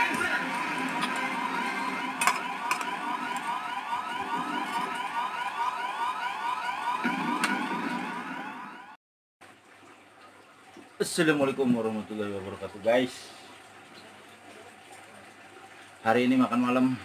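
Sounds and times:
electronic rising whoops: 0.0 - 9.0.

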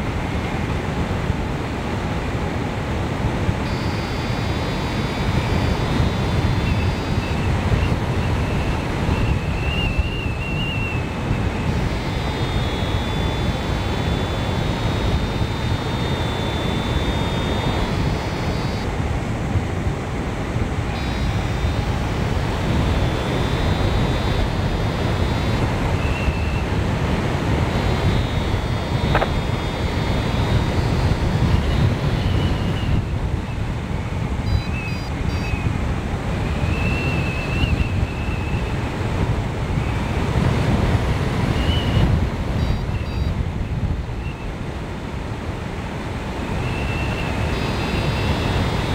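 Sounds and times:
wind buffeting microphone: 0.0 - 48.9
thin high tones: 3.6 - 18.9, 20.9 - 26.8.

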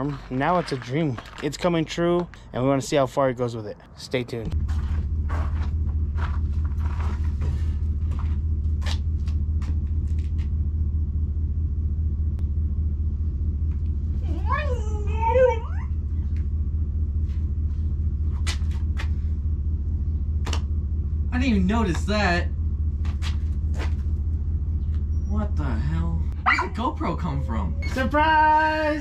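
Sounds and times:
truck engine idling: 4.5 - 29.0.

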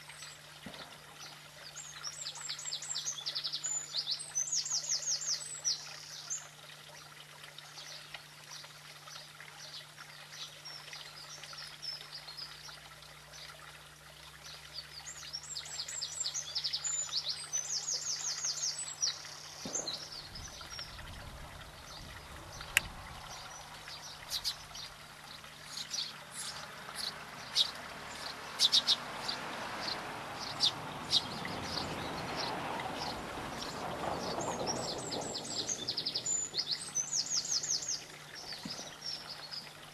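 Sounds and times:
songbird trilling: 21.9 - 24.9, 25.7 - 32.5.

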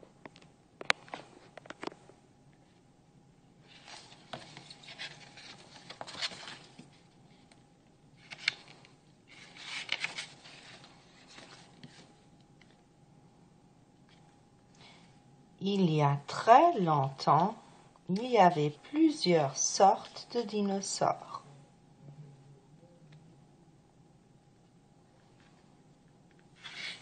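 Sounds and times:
book pages rustling: 3.6 - 7.6, 8.2 - 12.8, 26.3 - 27.0.

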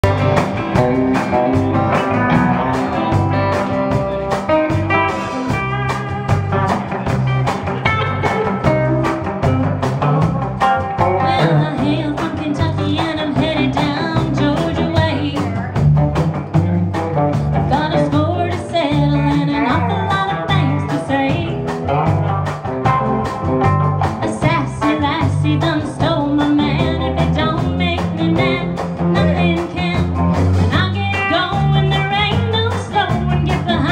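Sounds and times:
live rock band playing: 0.0 - 33.9
woman singing: 11.2 - 15.6, 17.7 - 21.8, 24.2 - 33.9.

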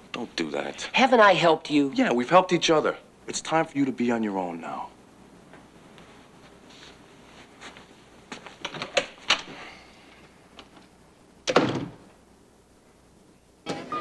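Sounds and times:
door shutting with heavy thud: 11.5 - 12.0.

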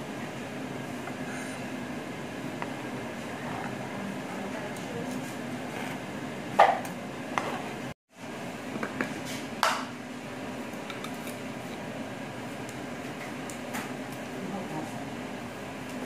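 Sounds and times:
steady low hum: 0.0 - 16.0
knife scraping cutting board: 5.1 - 6.0.

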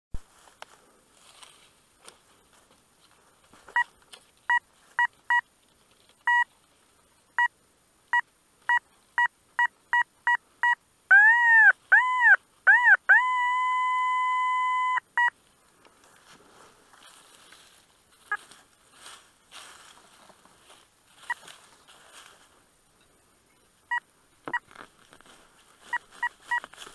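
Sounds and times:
metal detector beeps: 3.7 - 3.9, 4.5 - 5.5, 6.2 - 6.5, 8.1 - 15.4, 21.2 - 21.5, 23.9 - 24.8, 25.8 - 26.9
metal detector tones: 6.2 - 6.5, 10.3 - 15.3, 25.8 - 26.9.

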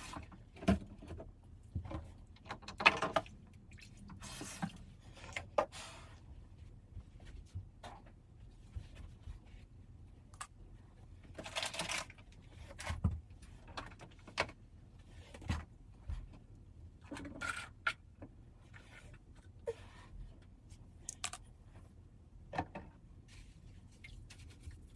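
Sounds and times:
objects clattering at a sink: 0.0 - 3.7.

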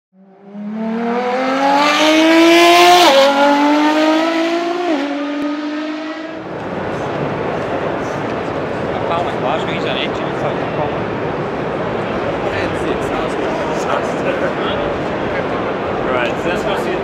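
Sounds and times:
car engine accelerating hard: 0.2 - 9.0.

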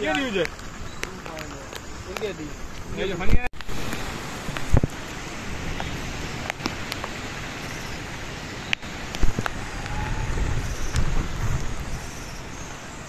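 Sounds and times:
raindrops ticking: 0.0 - 9.6
storm wind: 0.0 - 13.0
wind gusts thumping microphone: 0.0 - 13.0.

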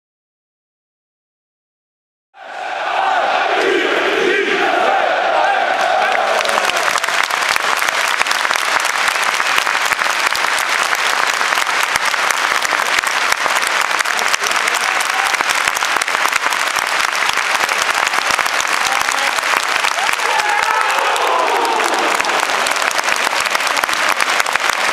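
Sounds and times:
stadium crowd applauding: 5.3 - 24.9.

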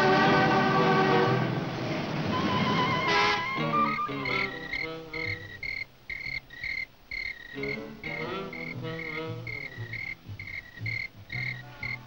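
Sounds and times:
cricket chirping: 2.9 - 12.0.

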